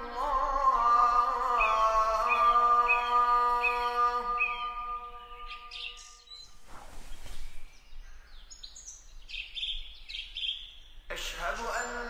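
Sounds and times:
call to prayer over loudspeaker: 0:00.0 - 0:05.7, 0:11.1 - 0:12.0
high bird chirps: 0:01.5 - 0:11.1.

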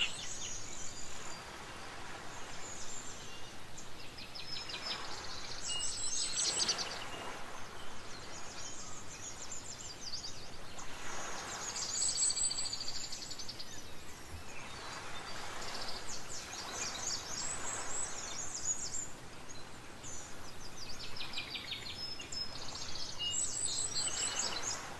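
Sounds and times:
birds chirping and trilling: 0:00.0 - 0:01.4
background hiss: 0:00.0 - 0:24.9.

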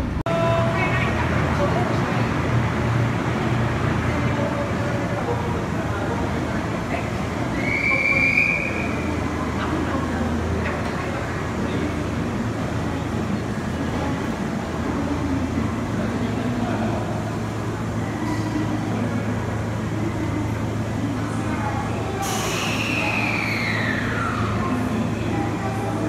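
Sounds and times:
train humming: 0:00.0 - 0:26.0
brief high squeal: 0:22.2 - 0:24.6.

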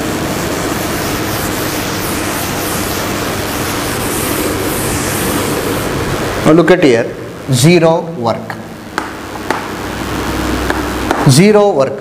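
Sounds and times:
duster rubbing on chalkboard: 0:00.0 - 0:06.0.

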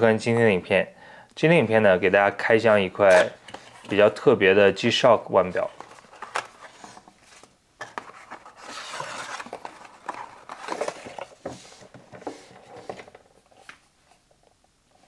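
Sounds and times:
cardboard and paper rustling: 0:05.5 - 0:13.8.

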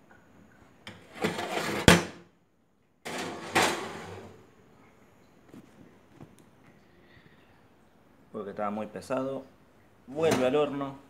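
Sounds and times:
camera scraping near microphone: 0:01.1 - 0:02.0.

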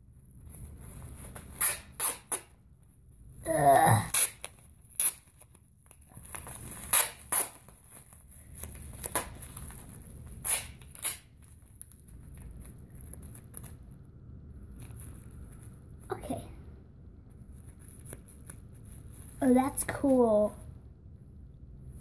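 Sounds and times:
masking tape ripping: 0:01.3 - 0:02.5, 0:03.6 - 0:12.0.

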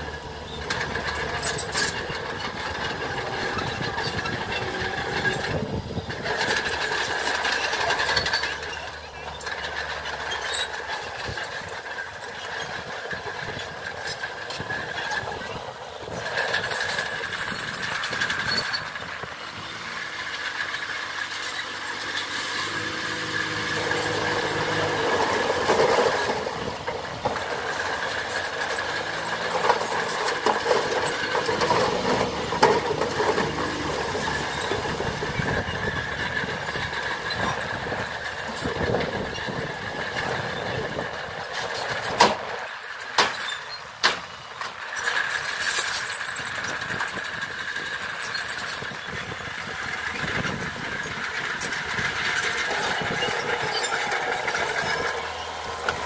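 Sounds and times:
bulldozer diesel engine: 0:00.0 - 0:56.0
dump truck engine: 0:00.0 - 0:56.0
soil and rocks sliding: 0:00.0 - 0:56.0.

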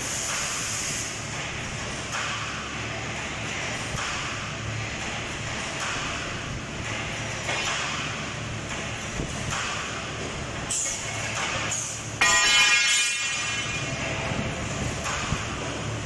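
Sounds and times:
loud high ringing tone: 0:12.2 - 0:14.1.

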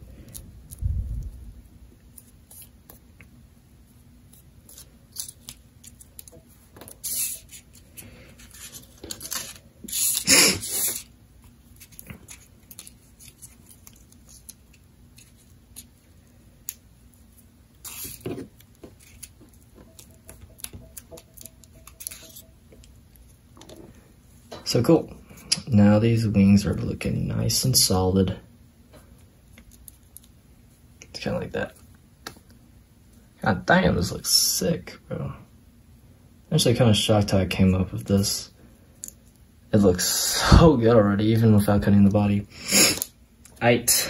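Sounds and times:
paper rustling and crinkling: 0:04.6 - 0:11.1, 0:11.7 - 0:15.9, 0:17.8 - 0:23.8.

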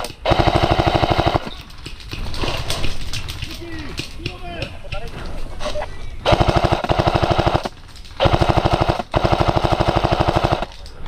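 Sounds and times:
airsoft machine gun bursts: 0:00.0 - 0:01.5, 0:06.3 - 0:10.7.

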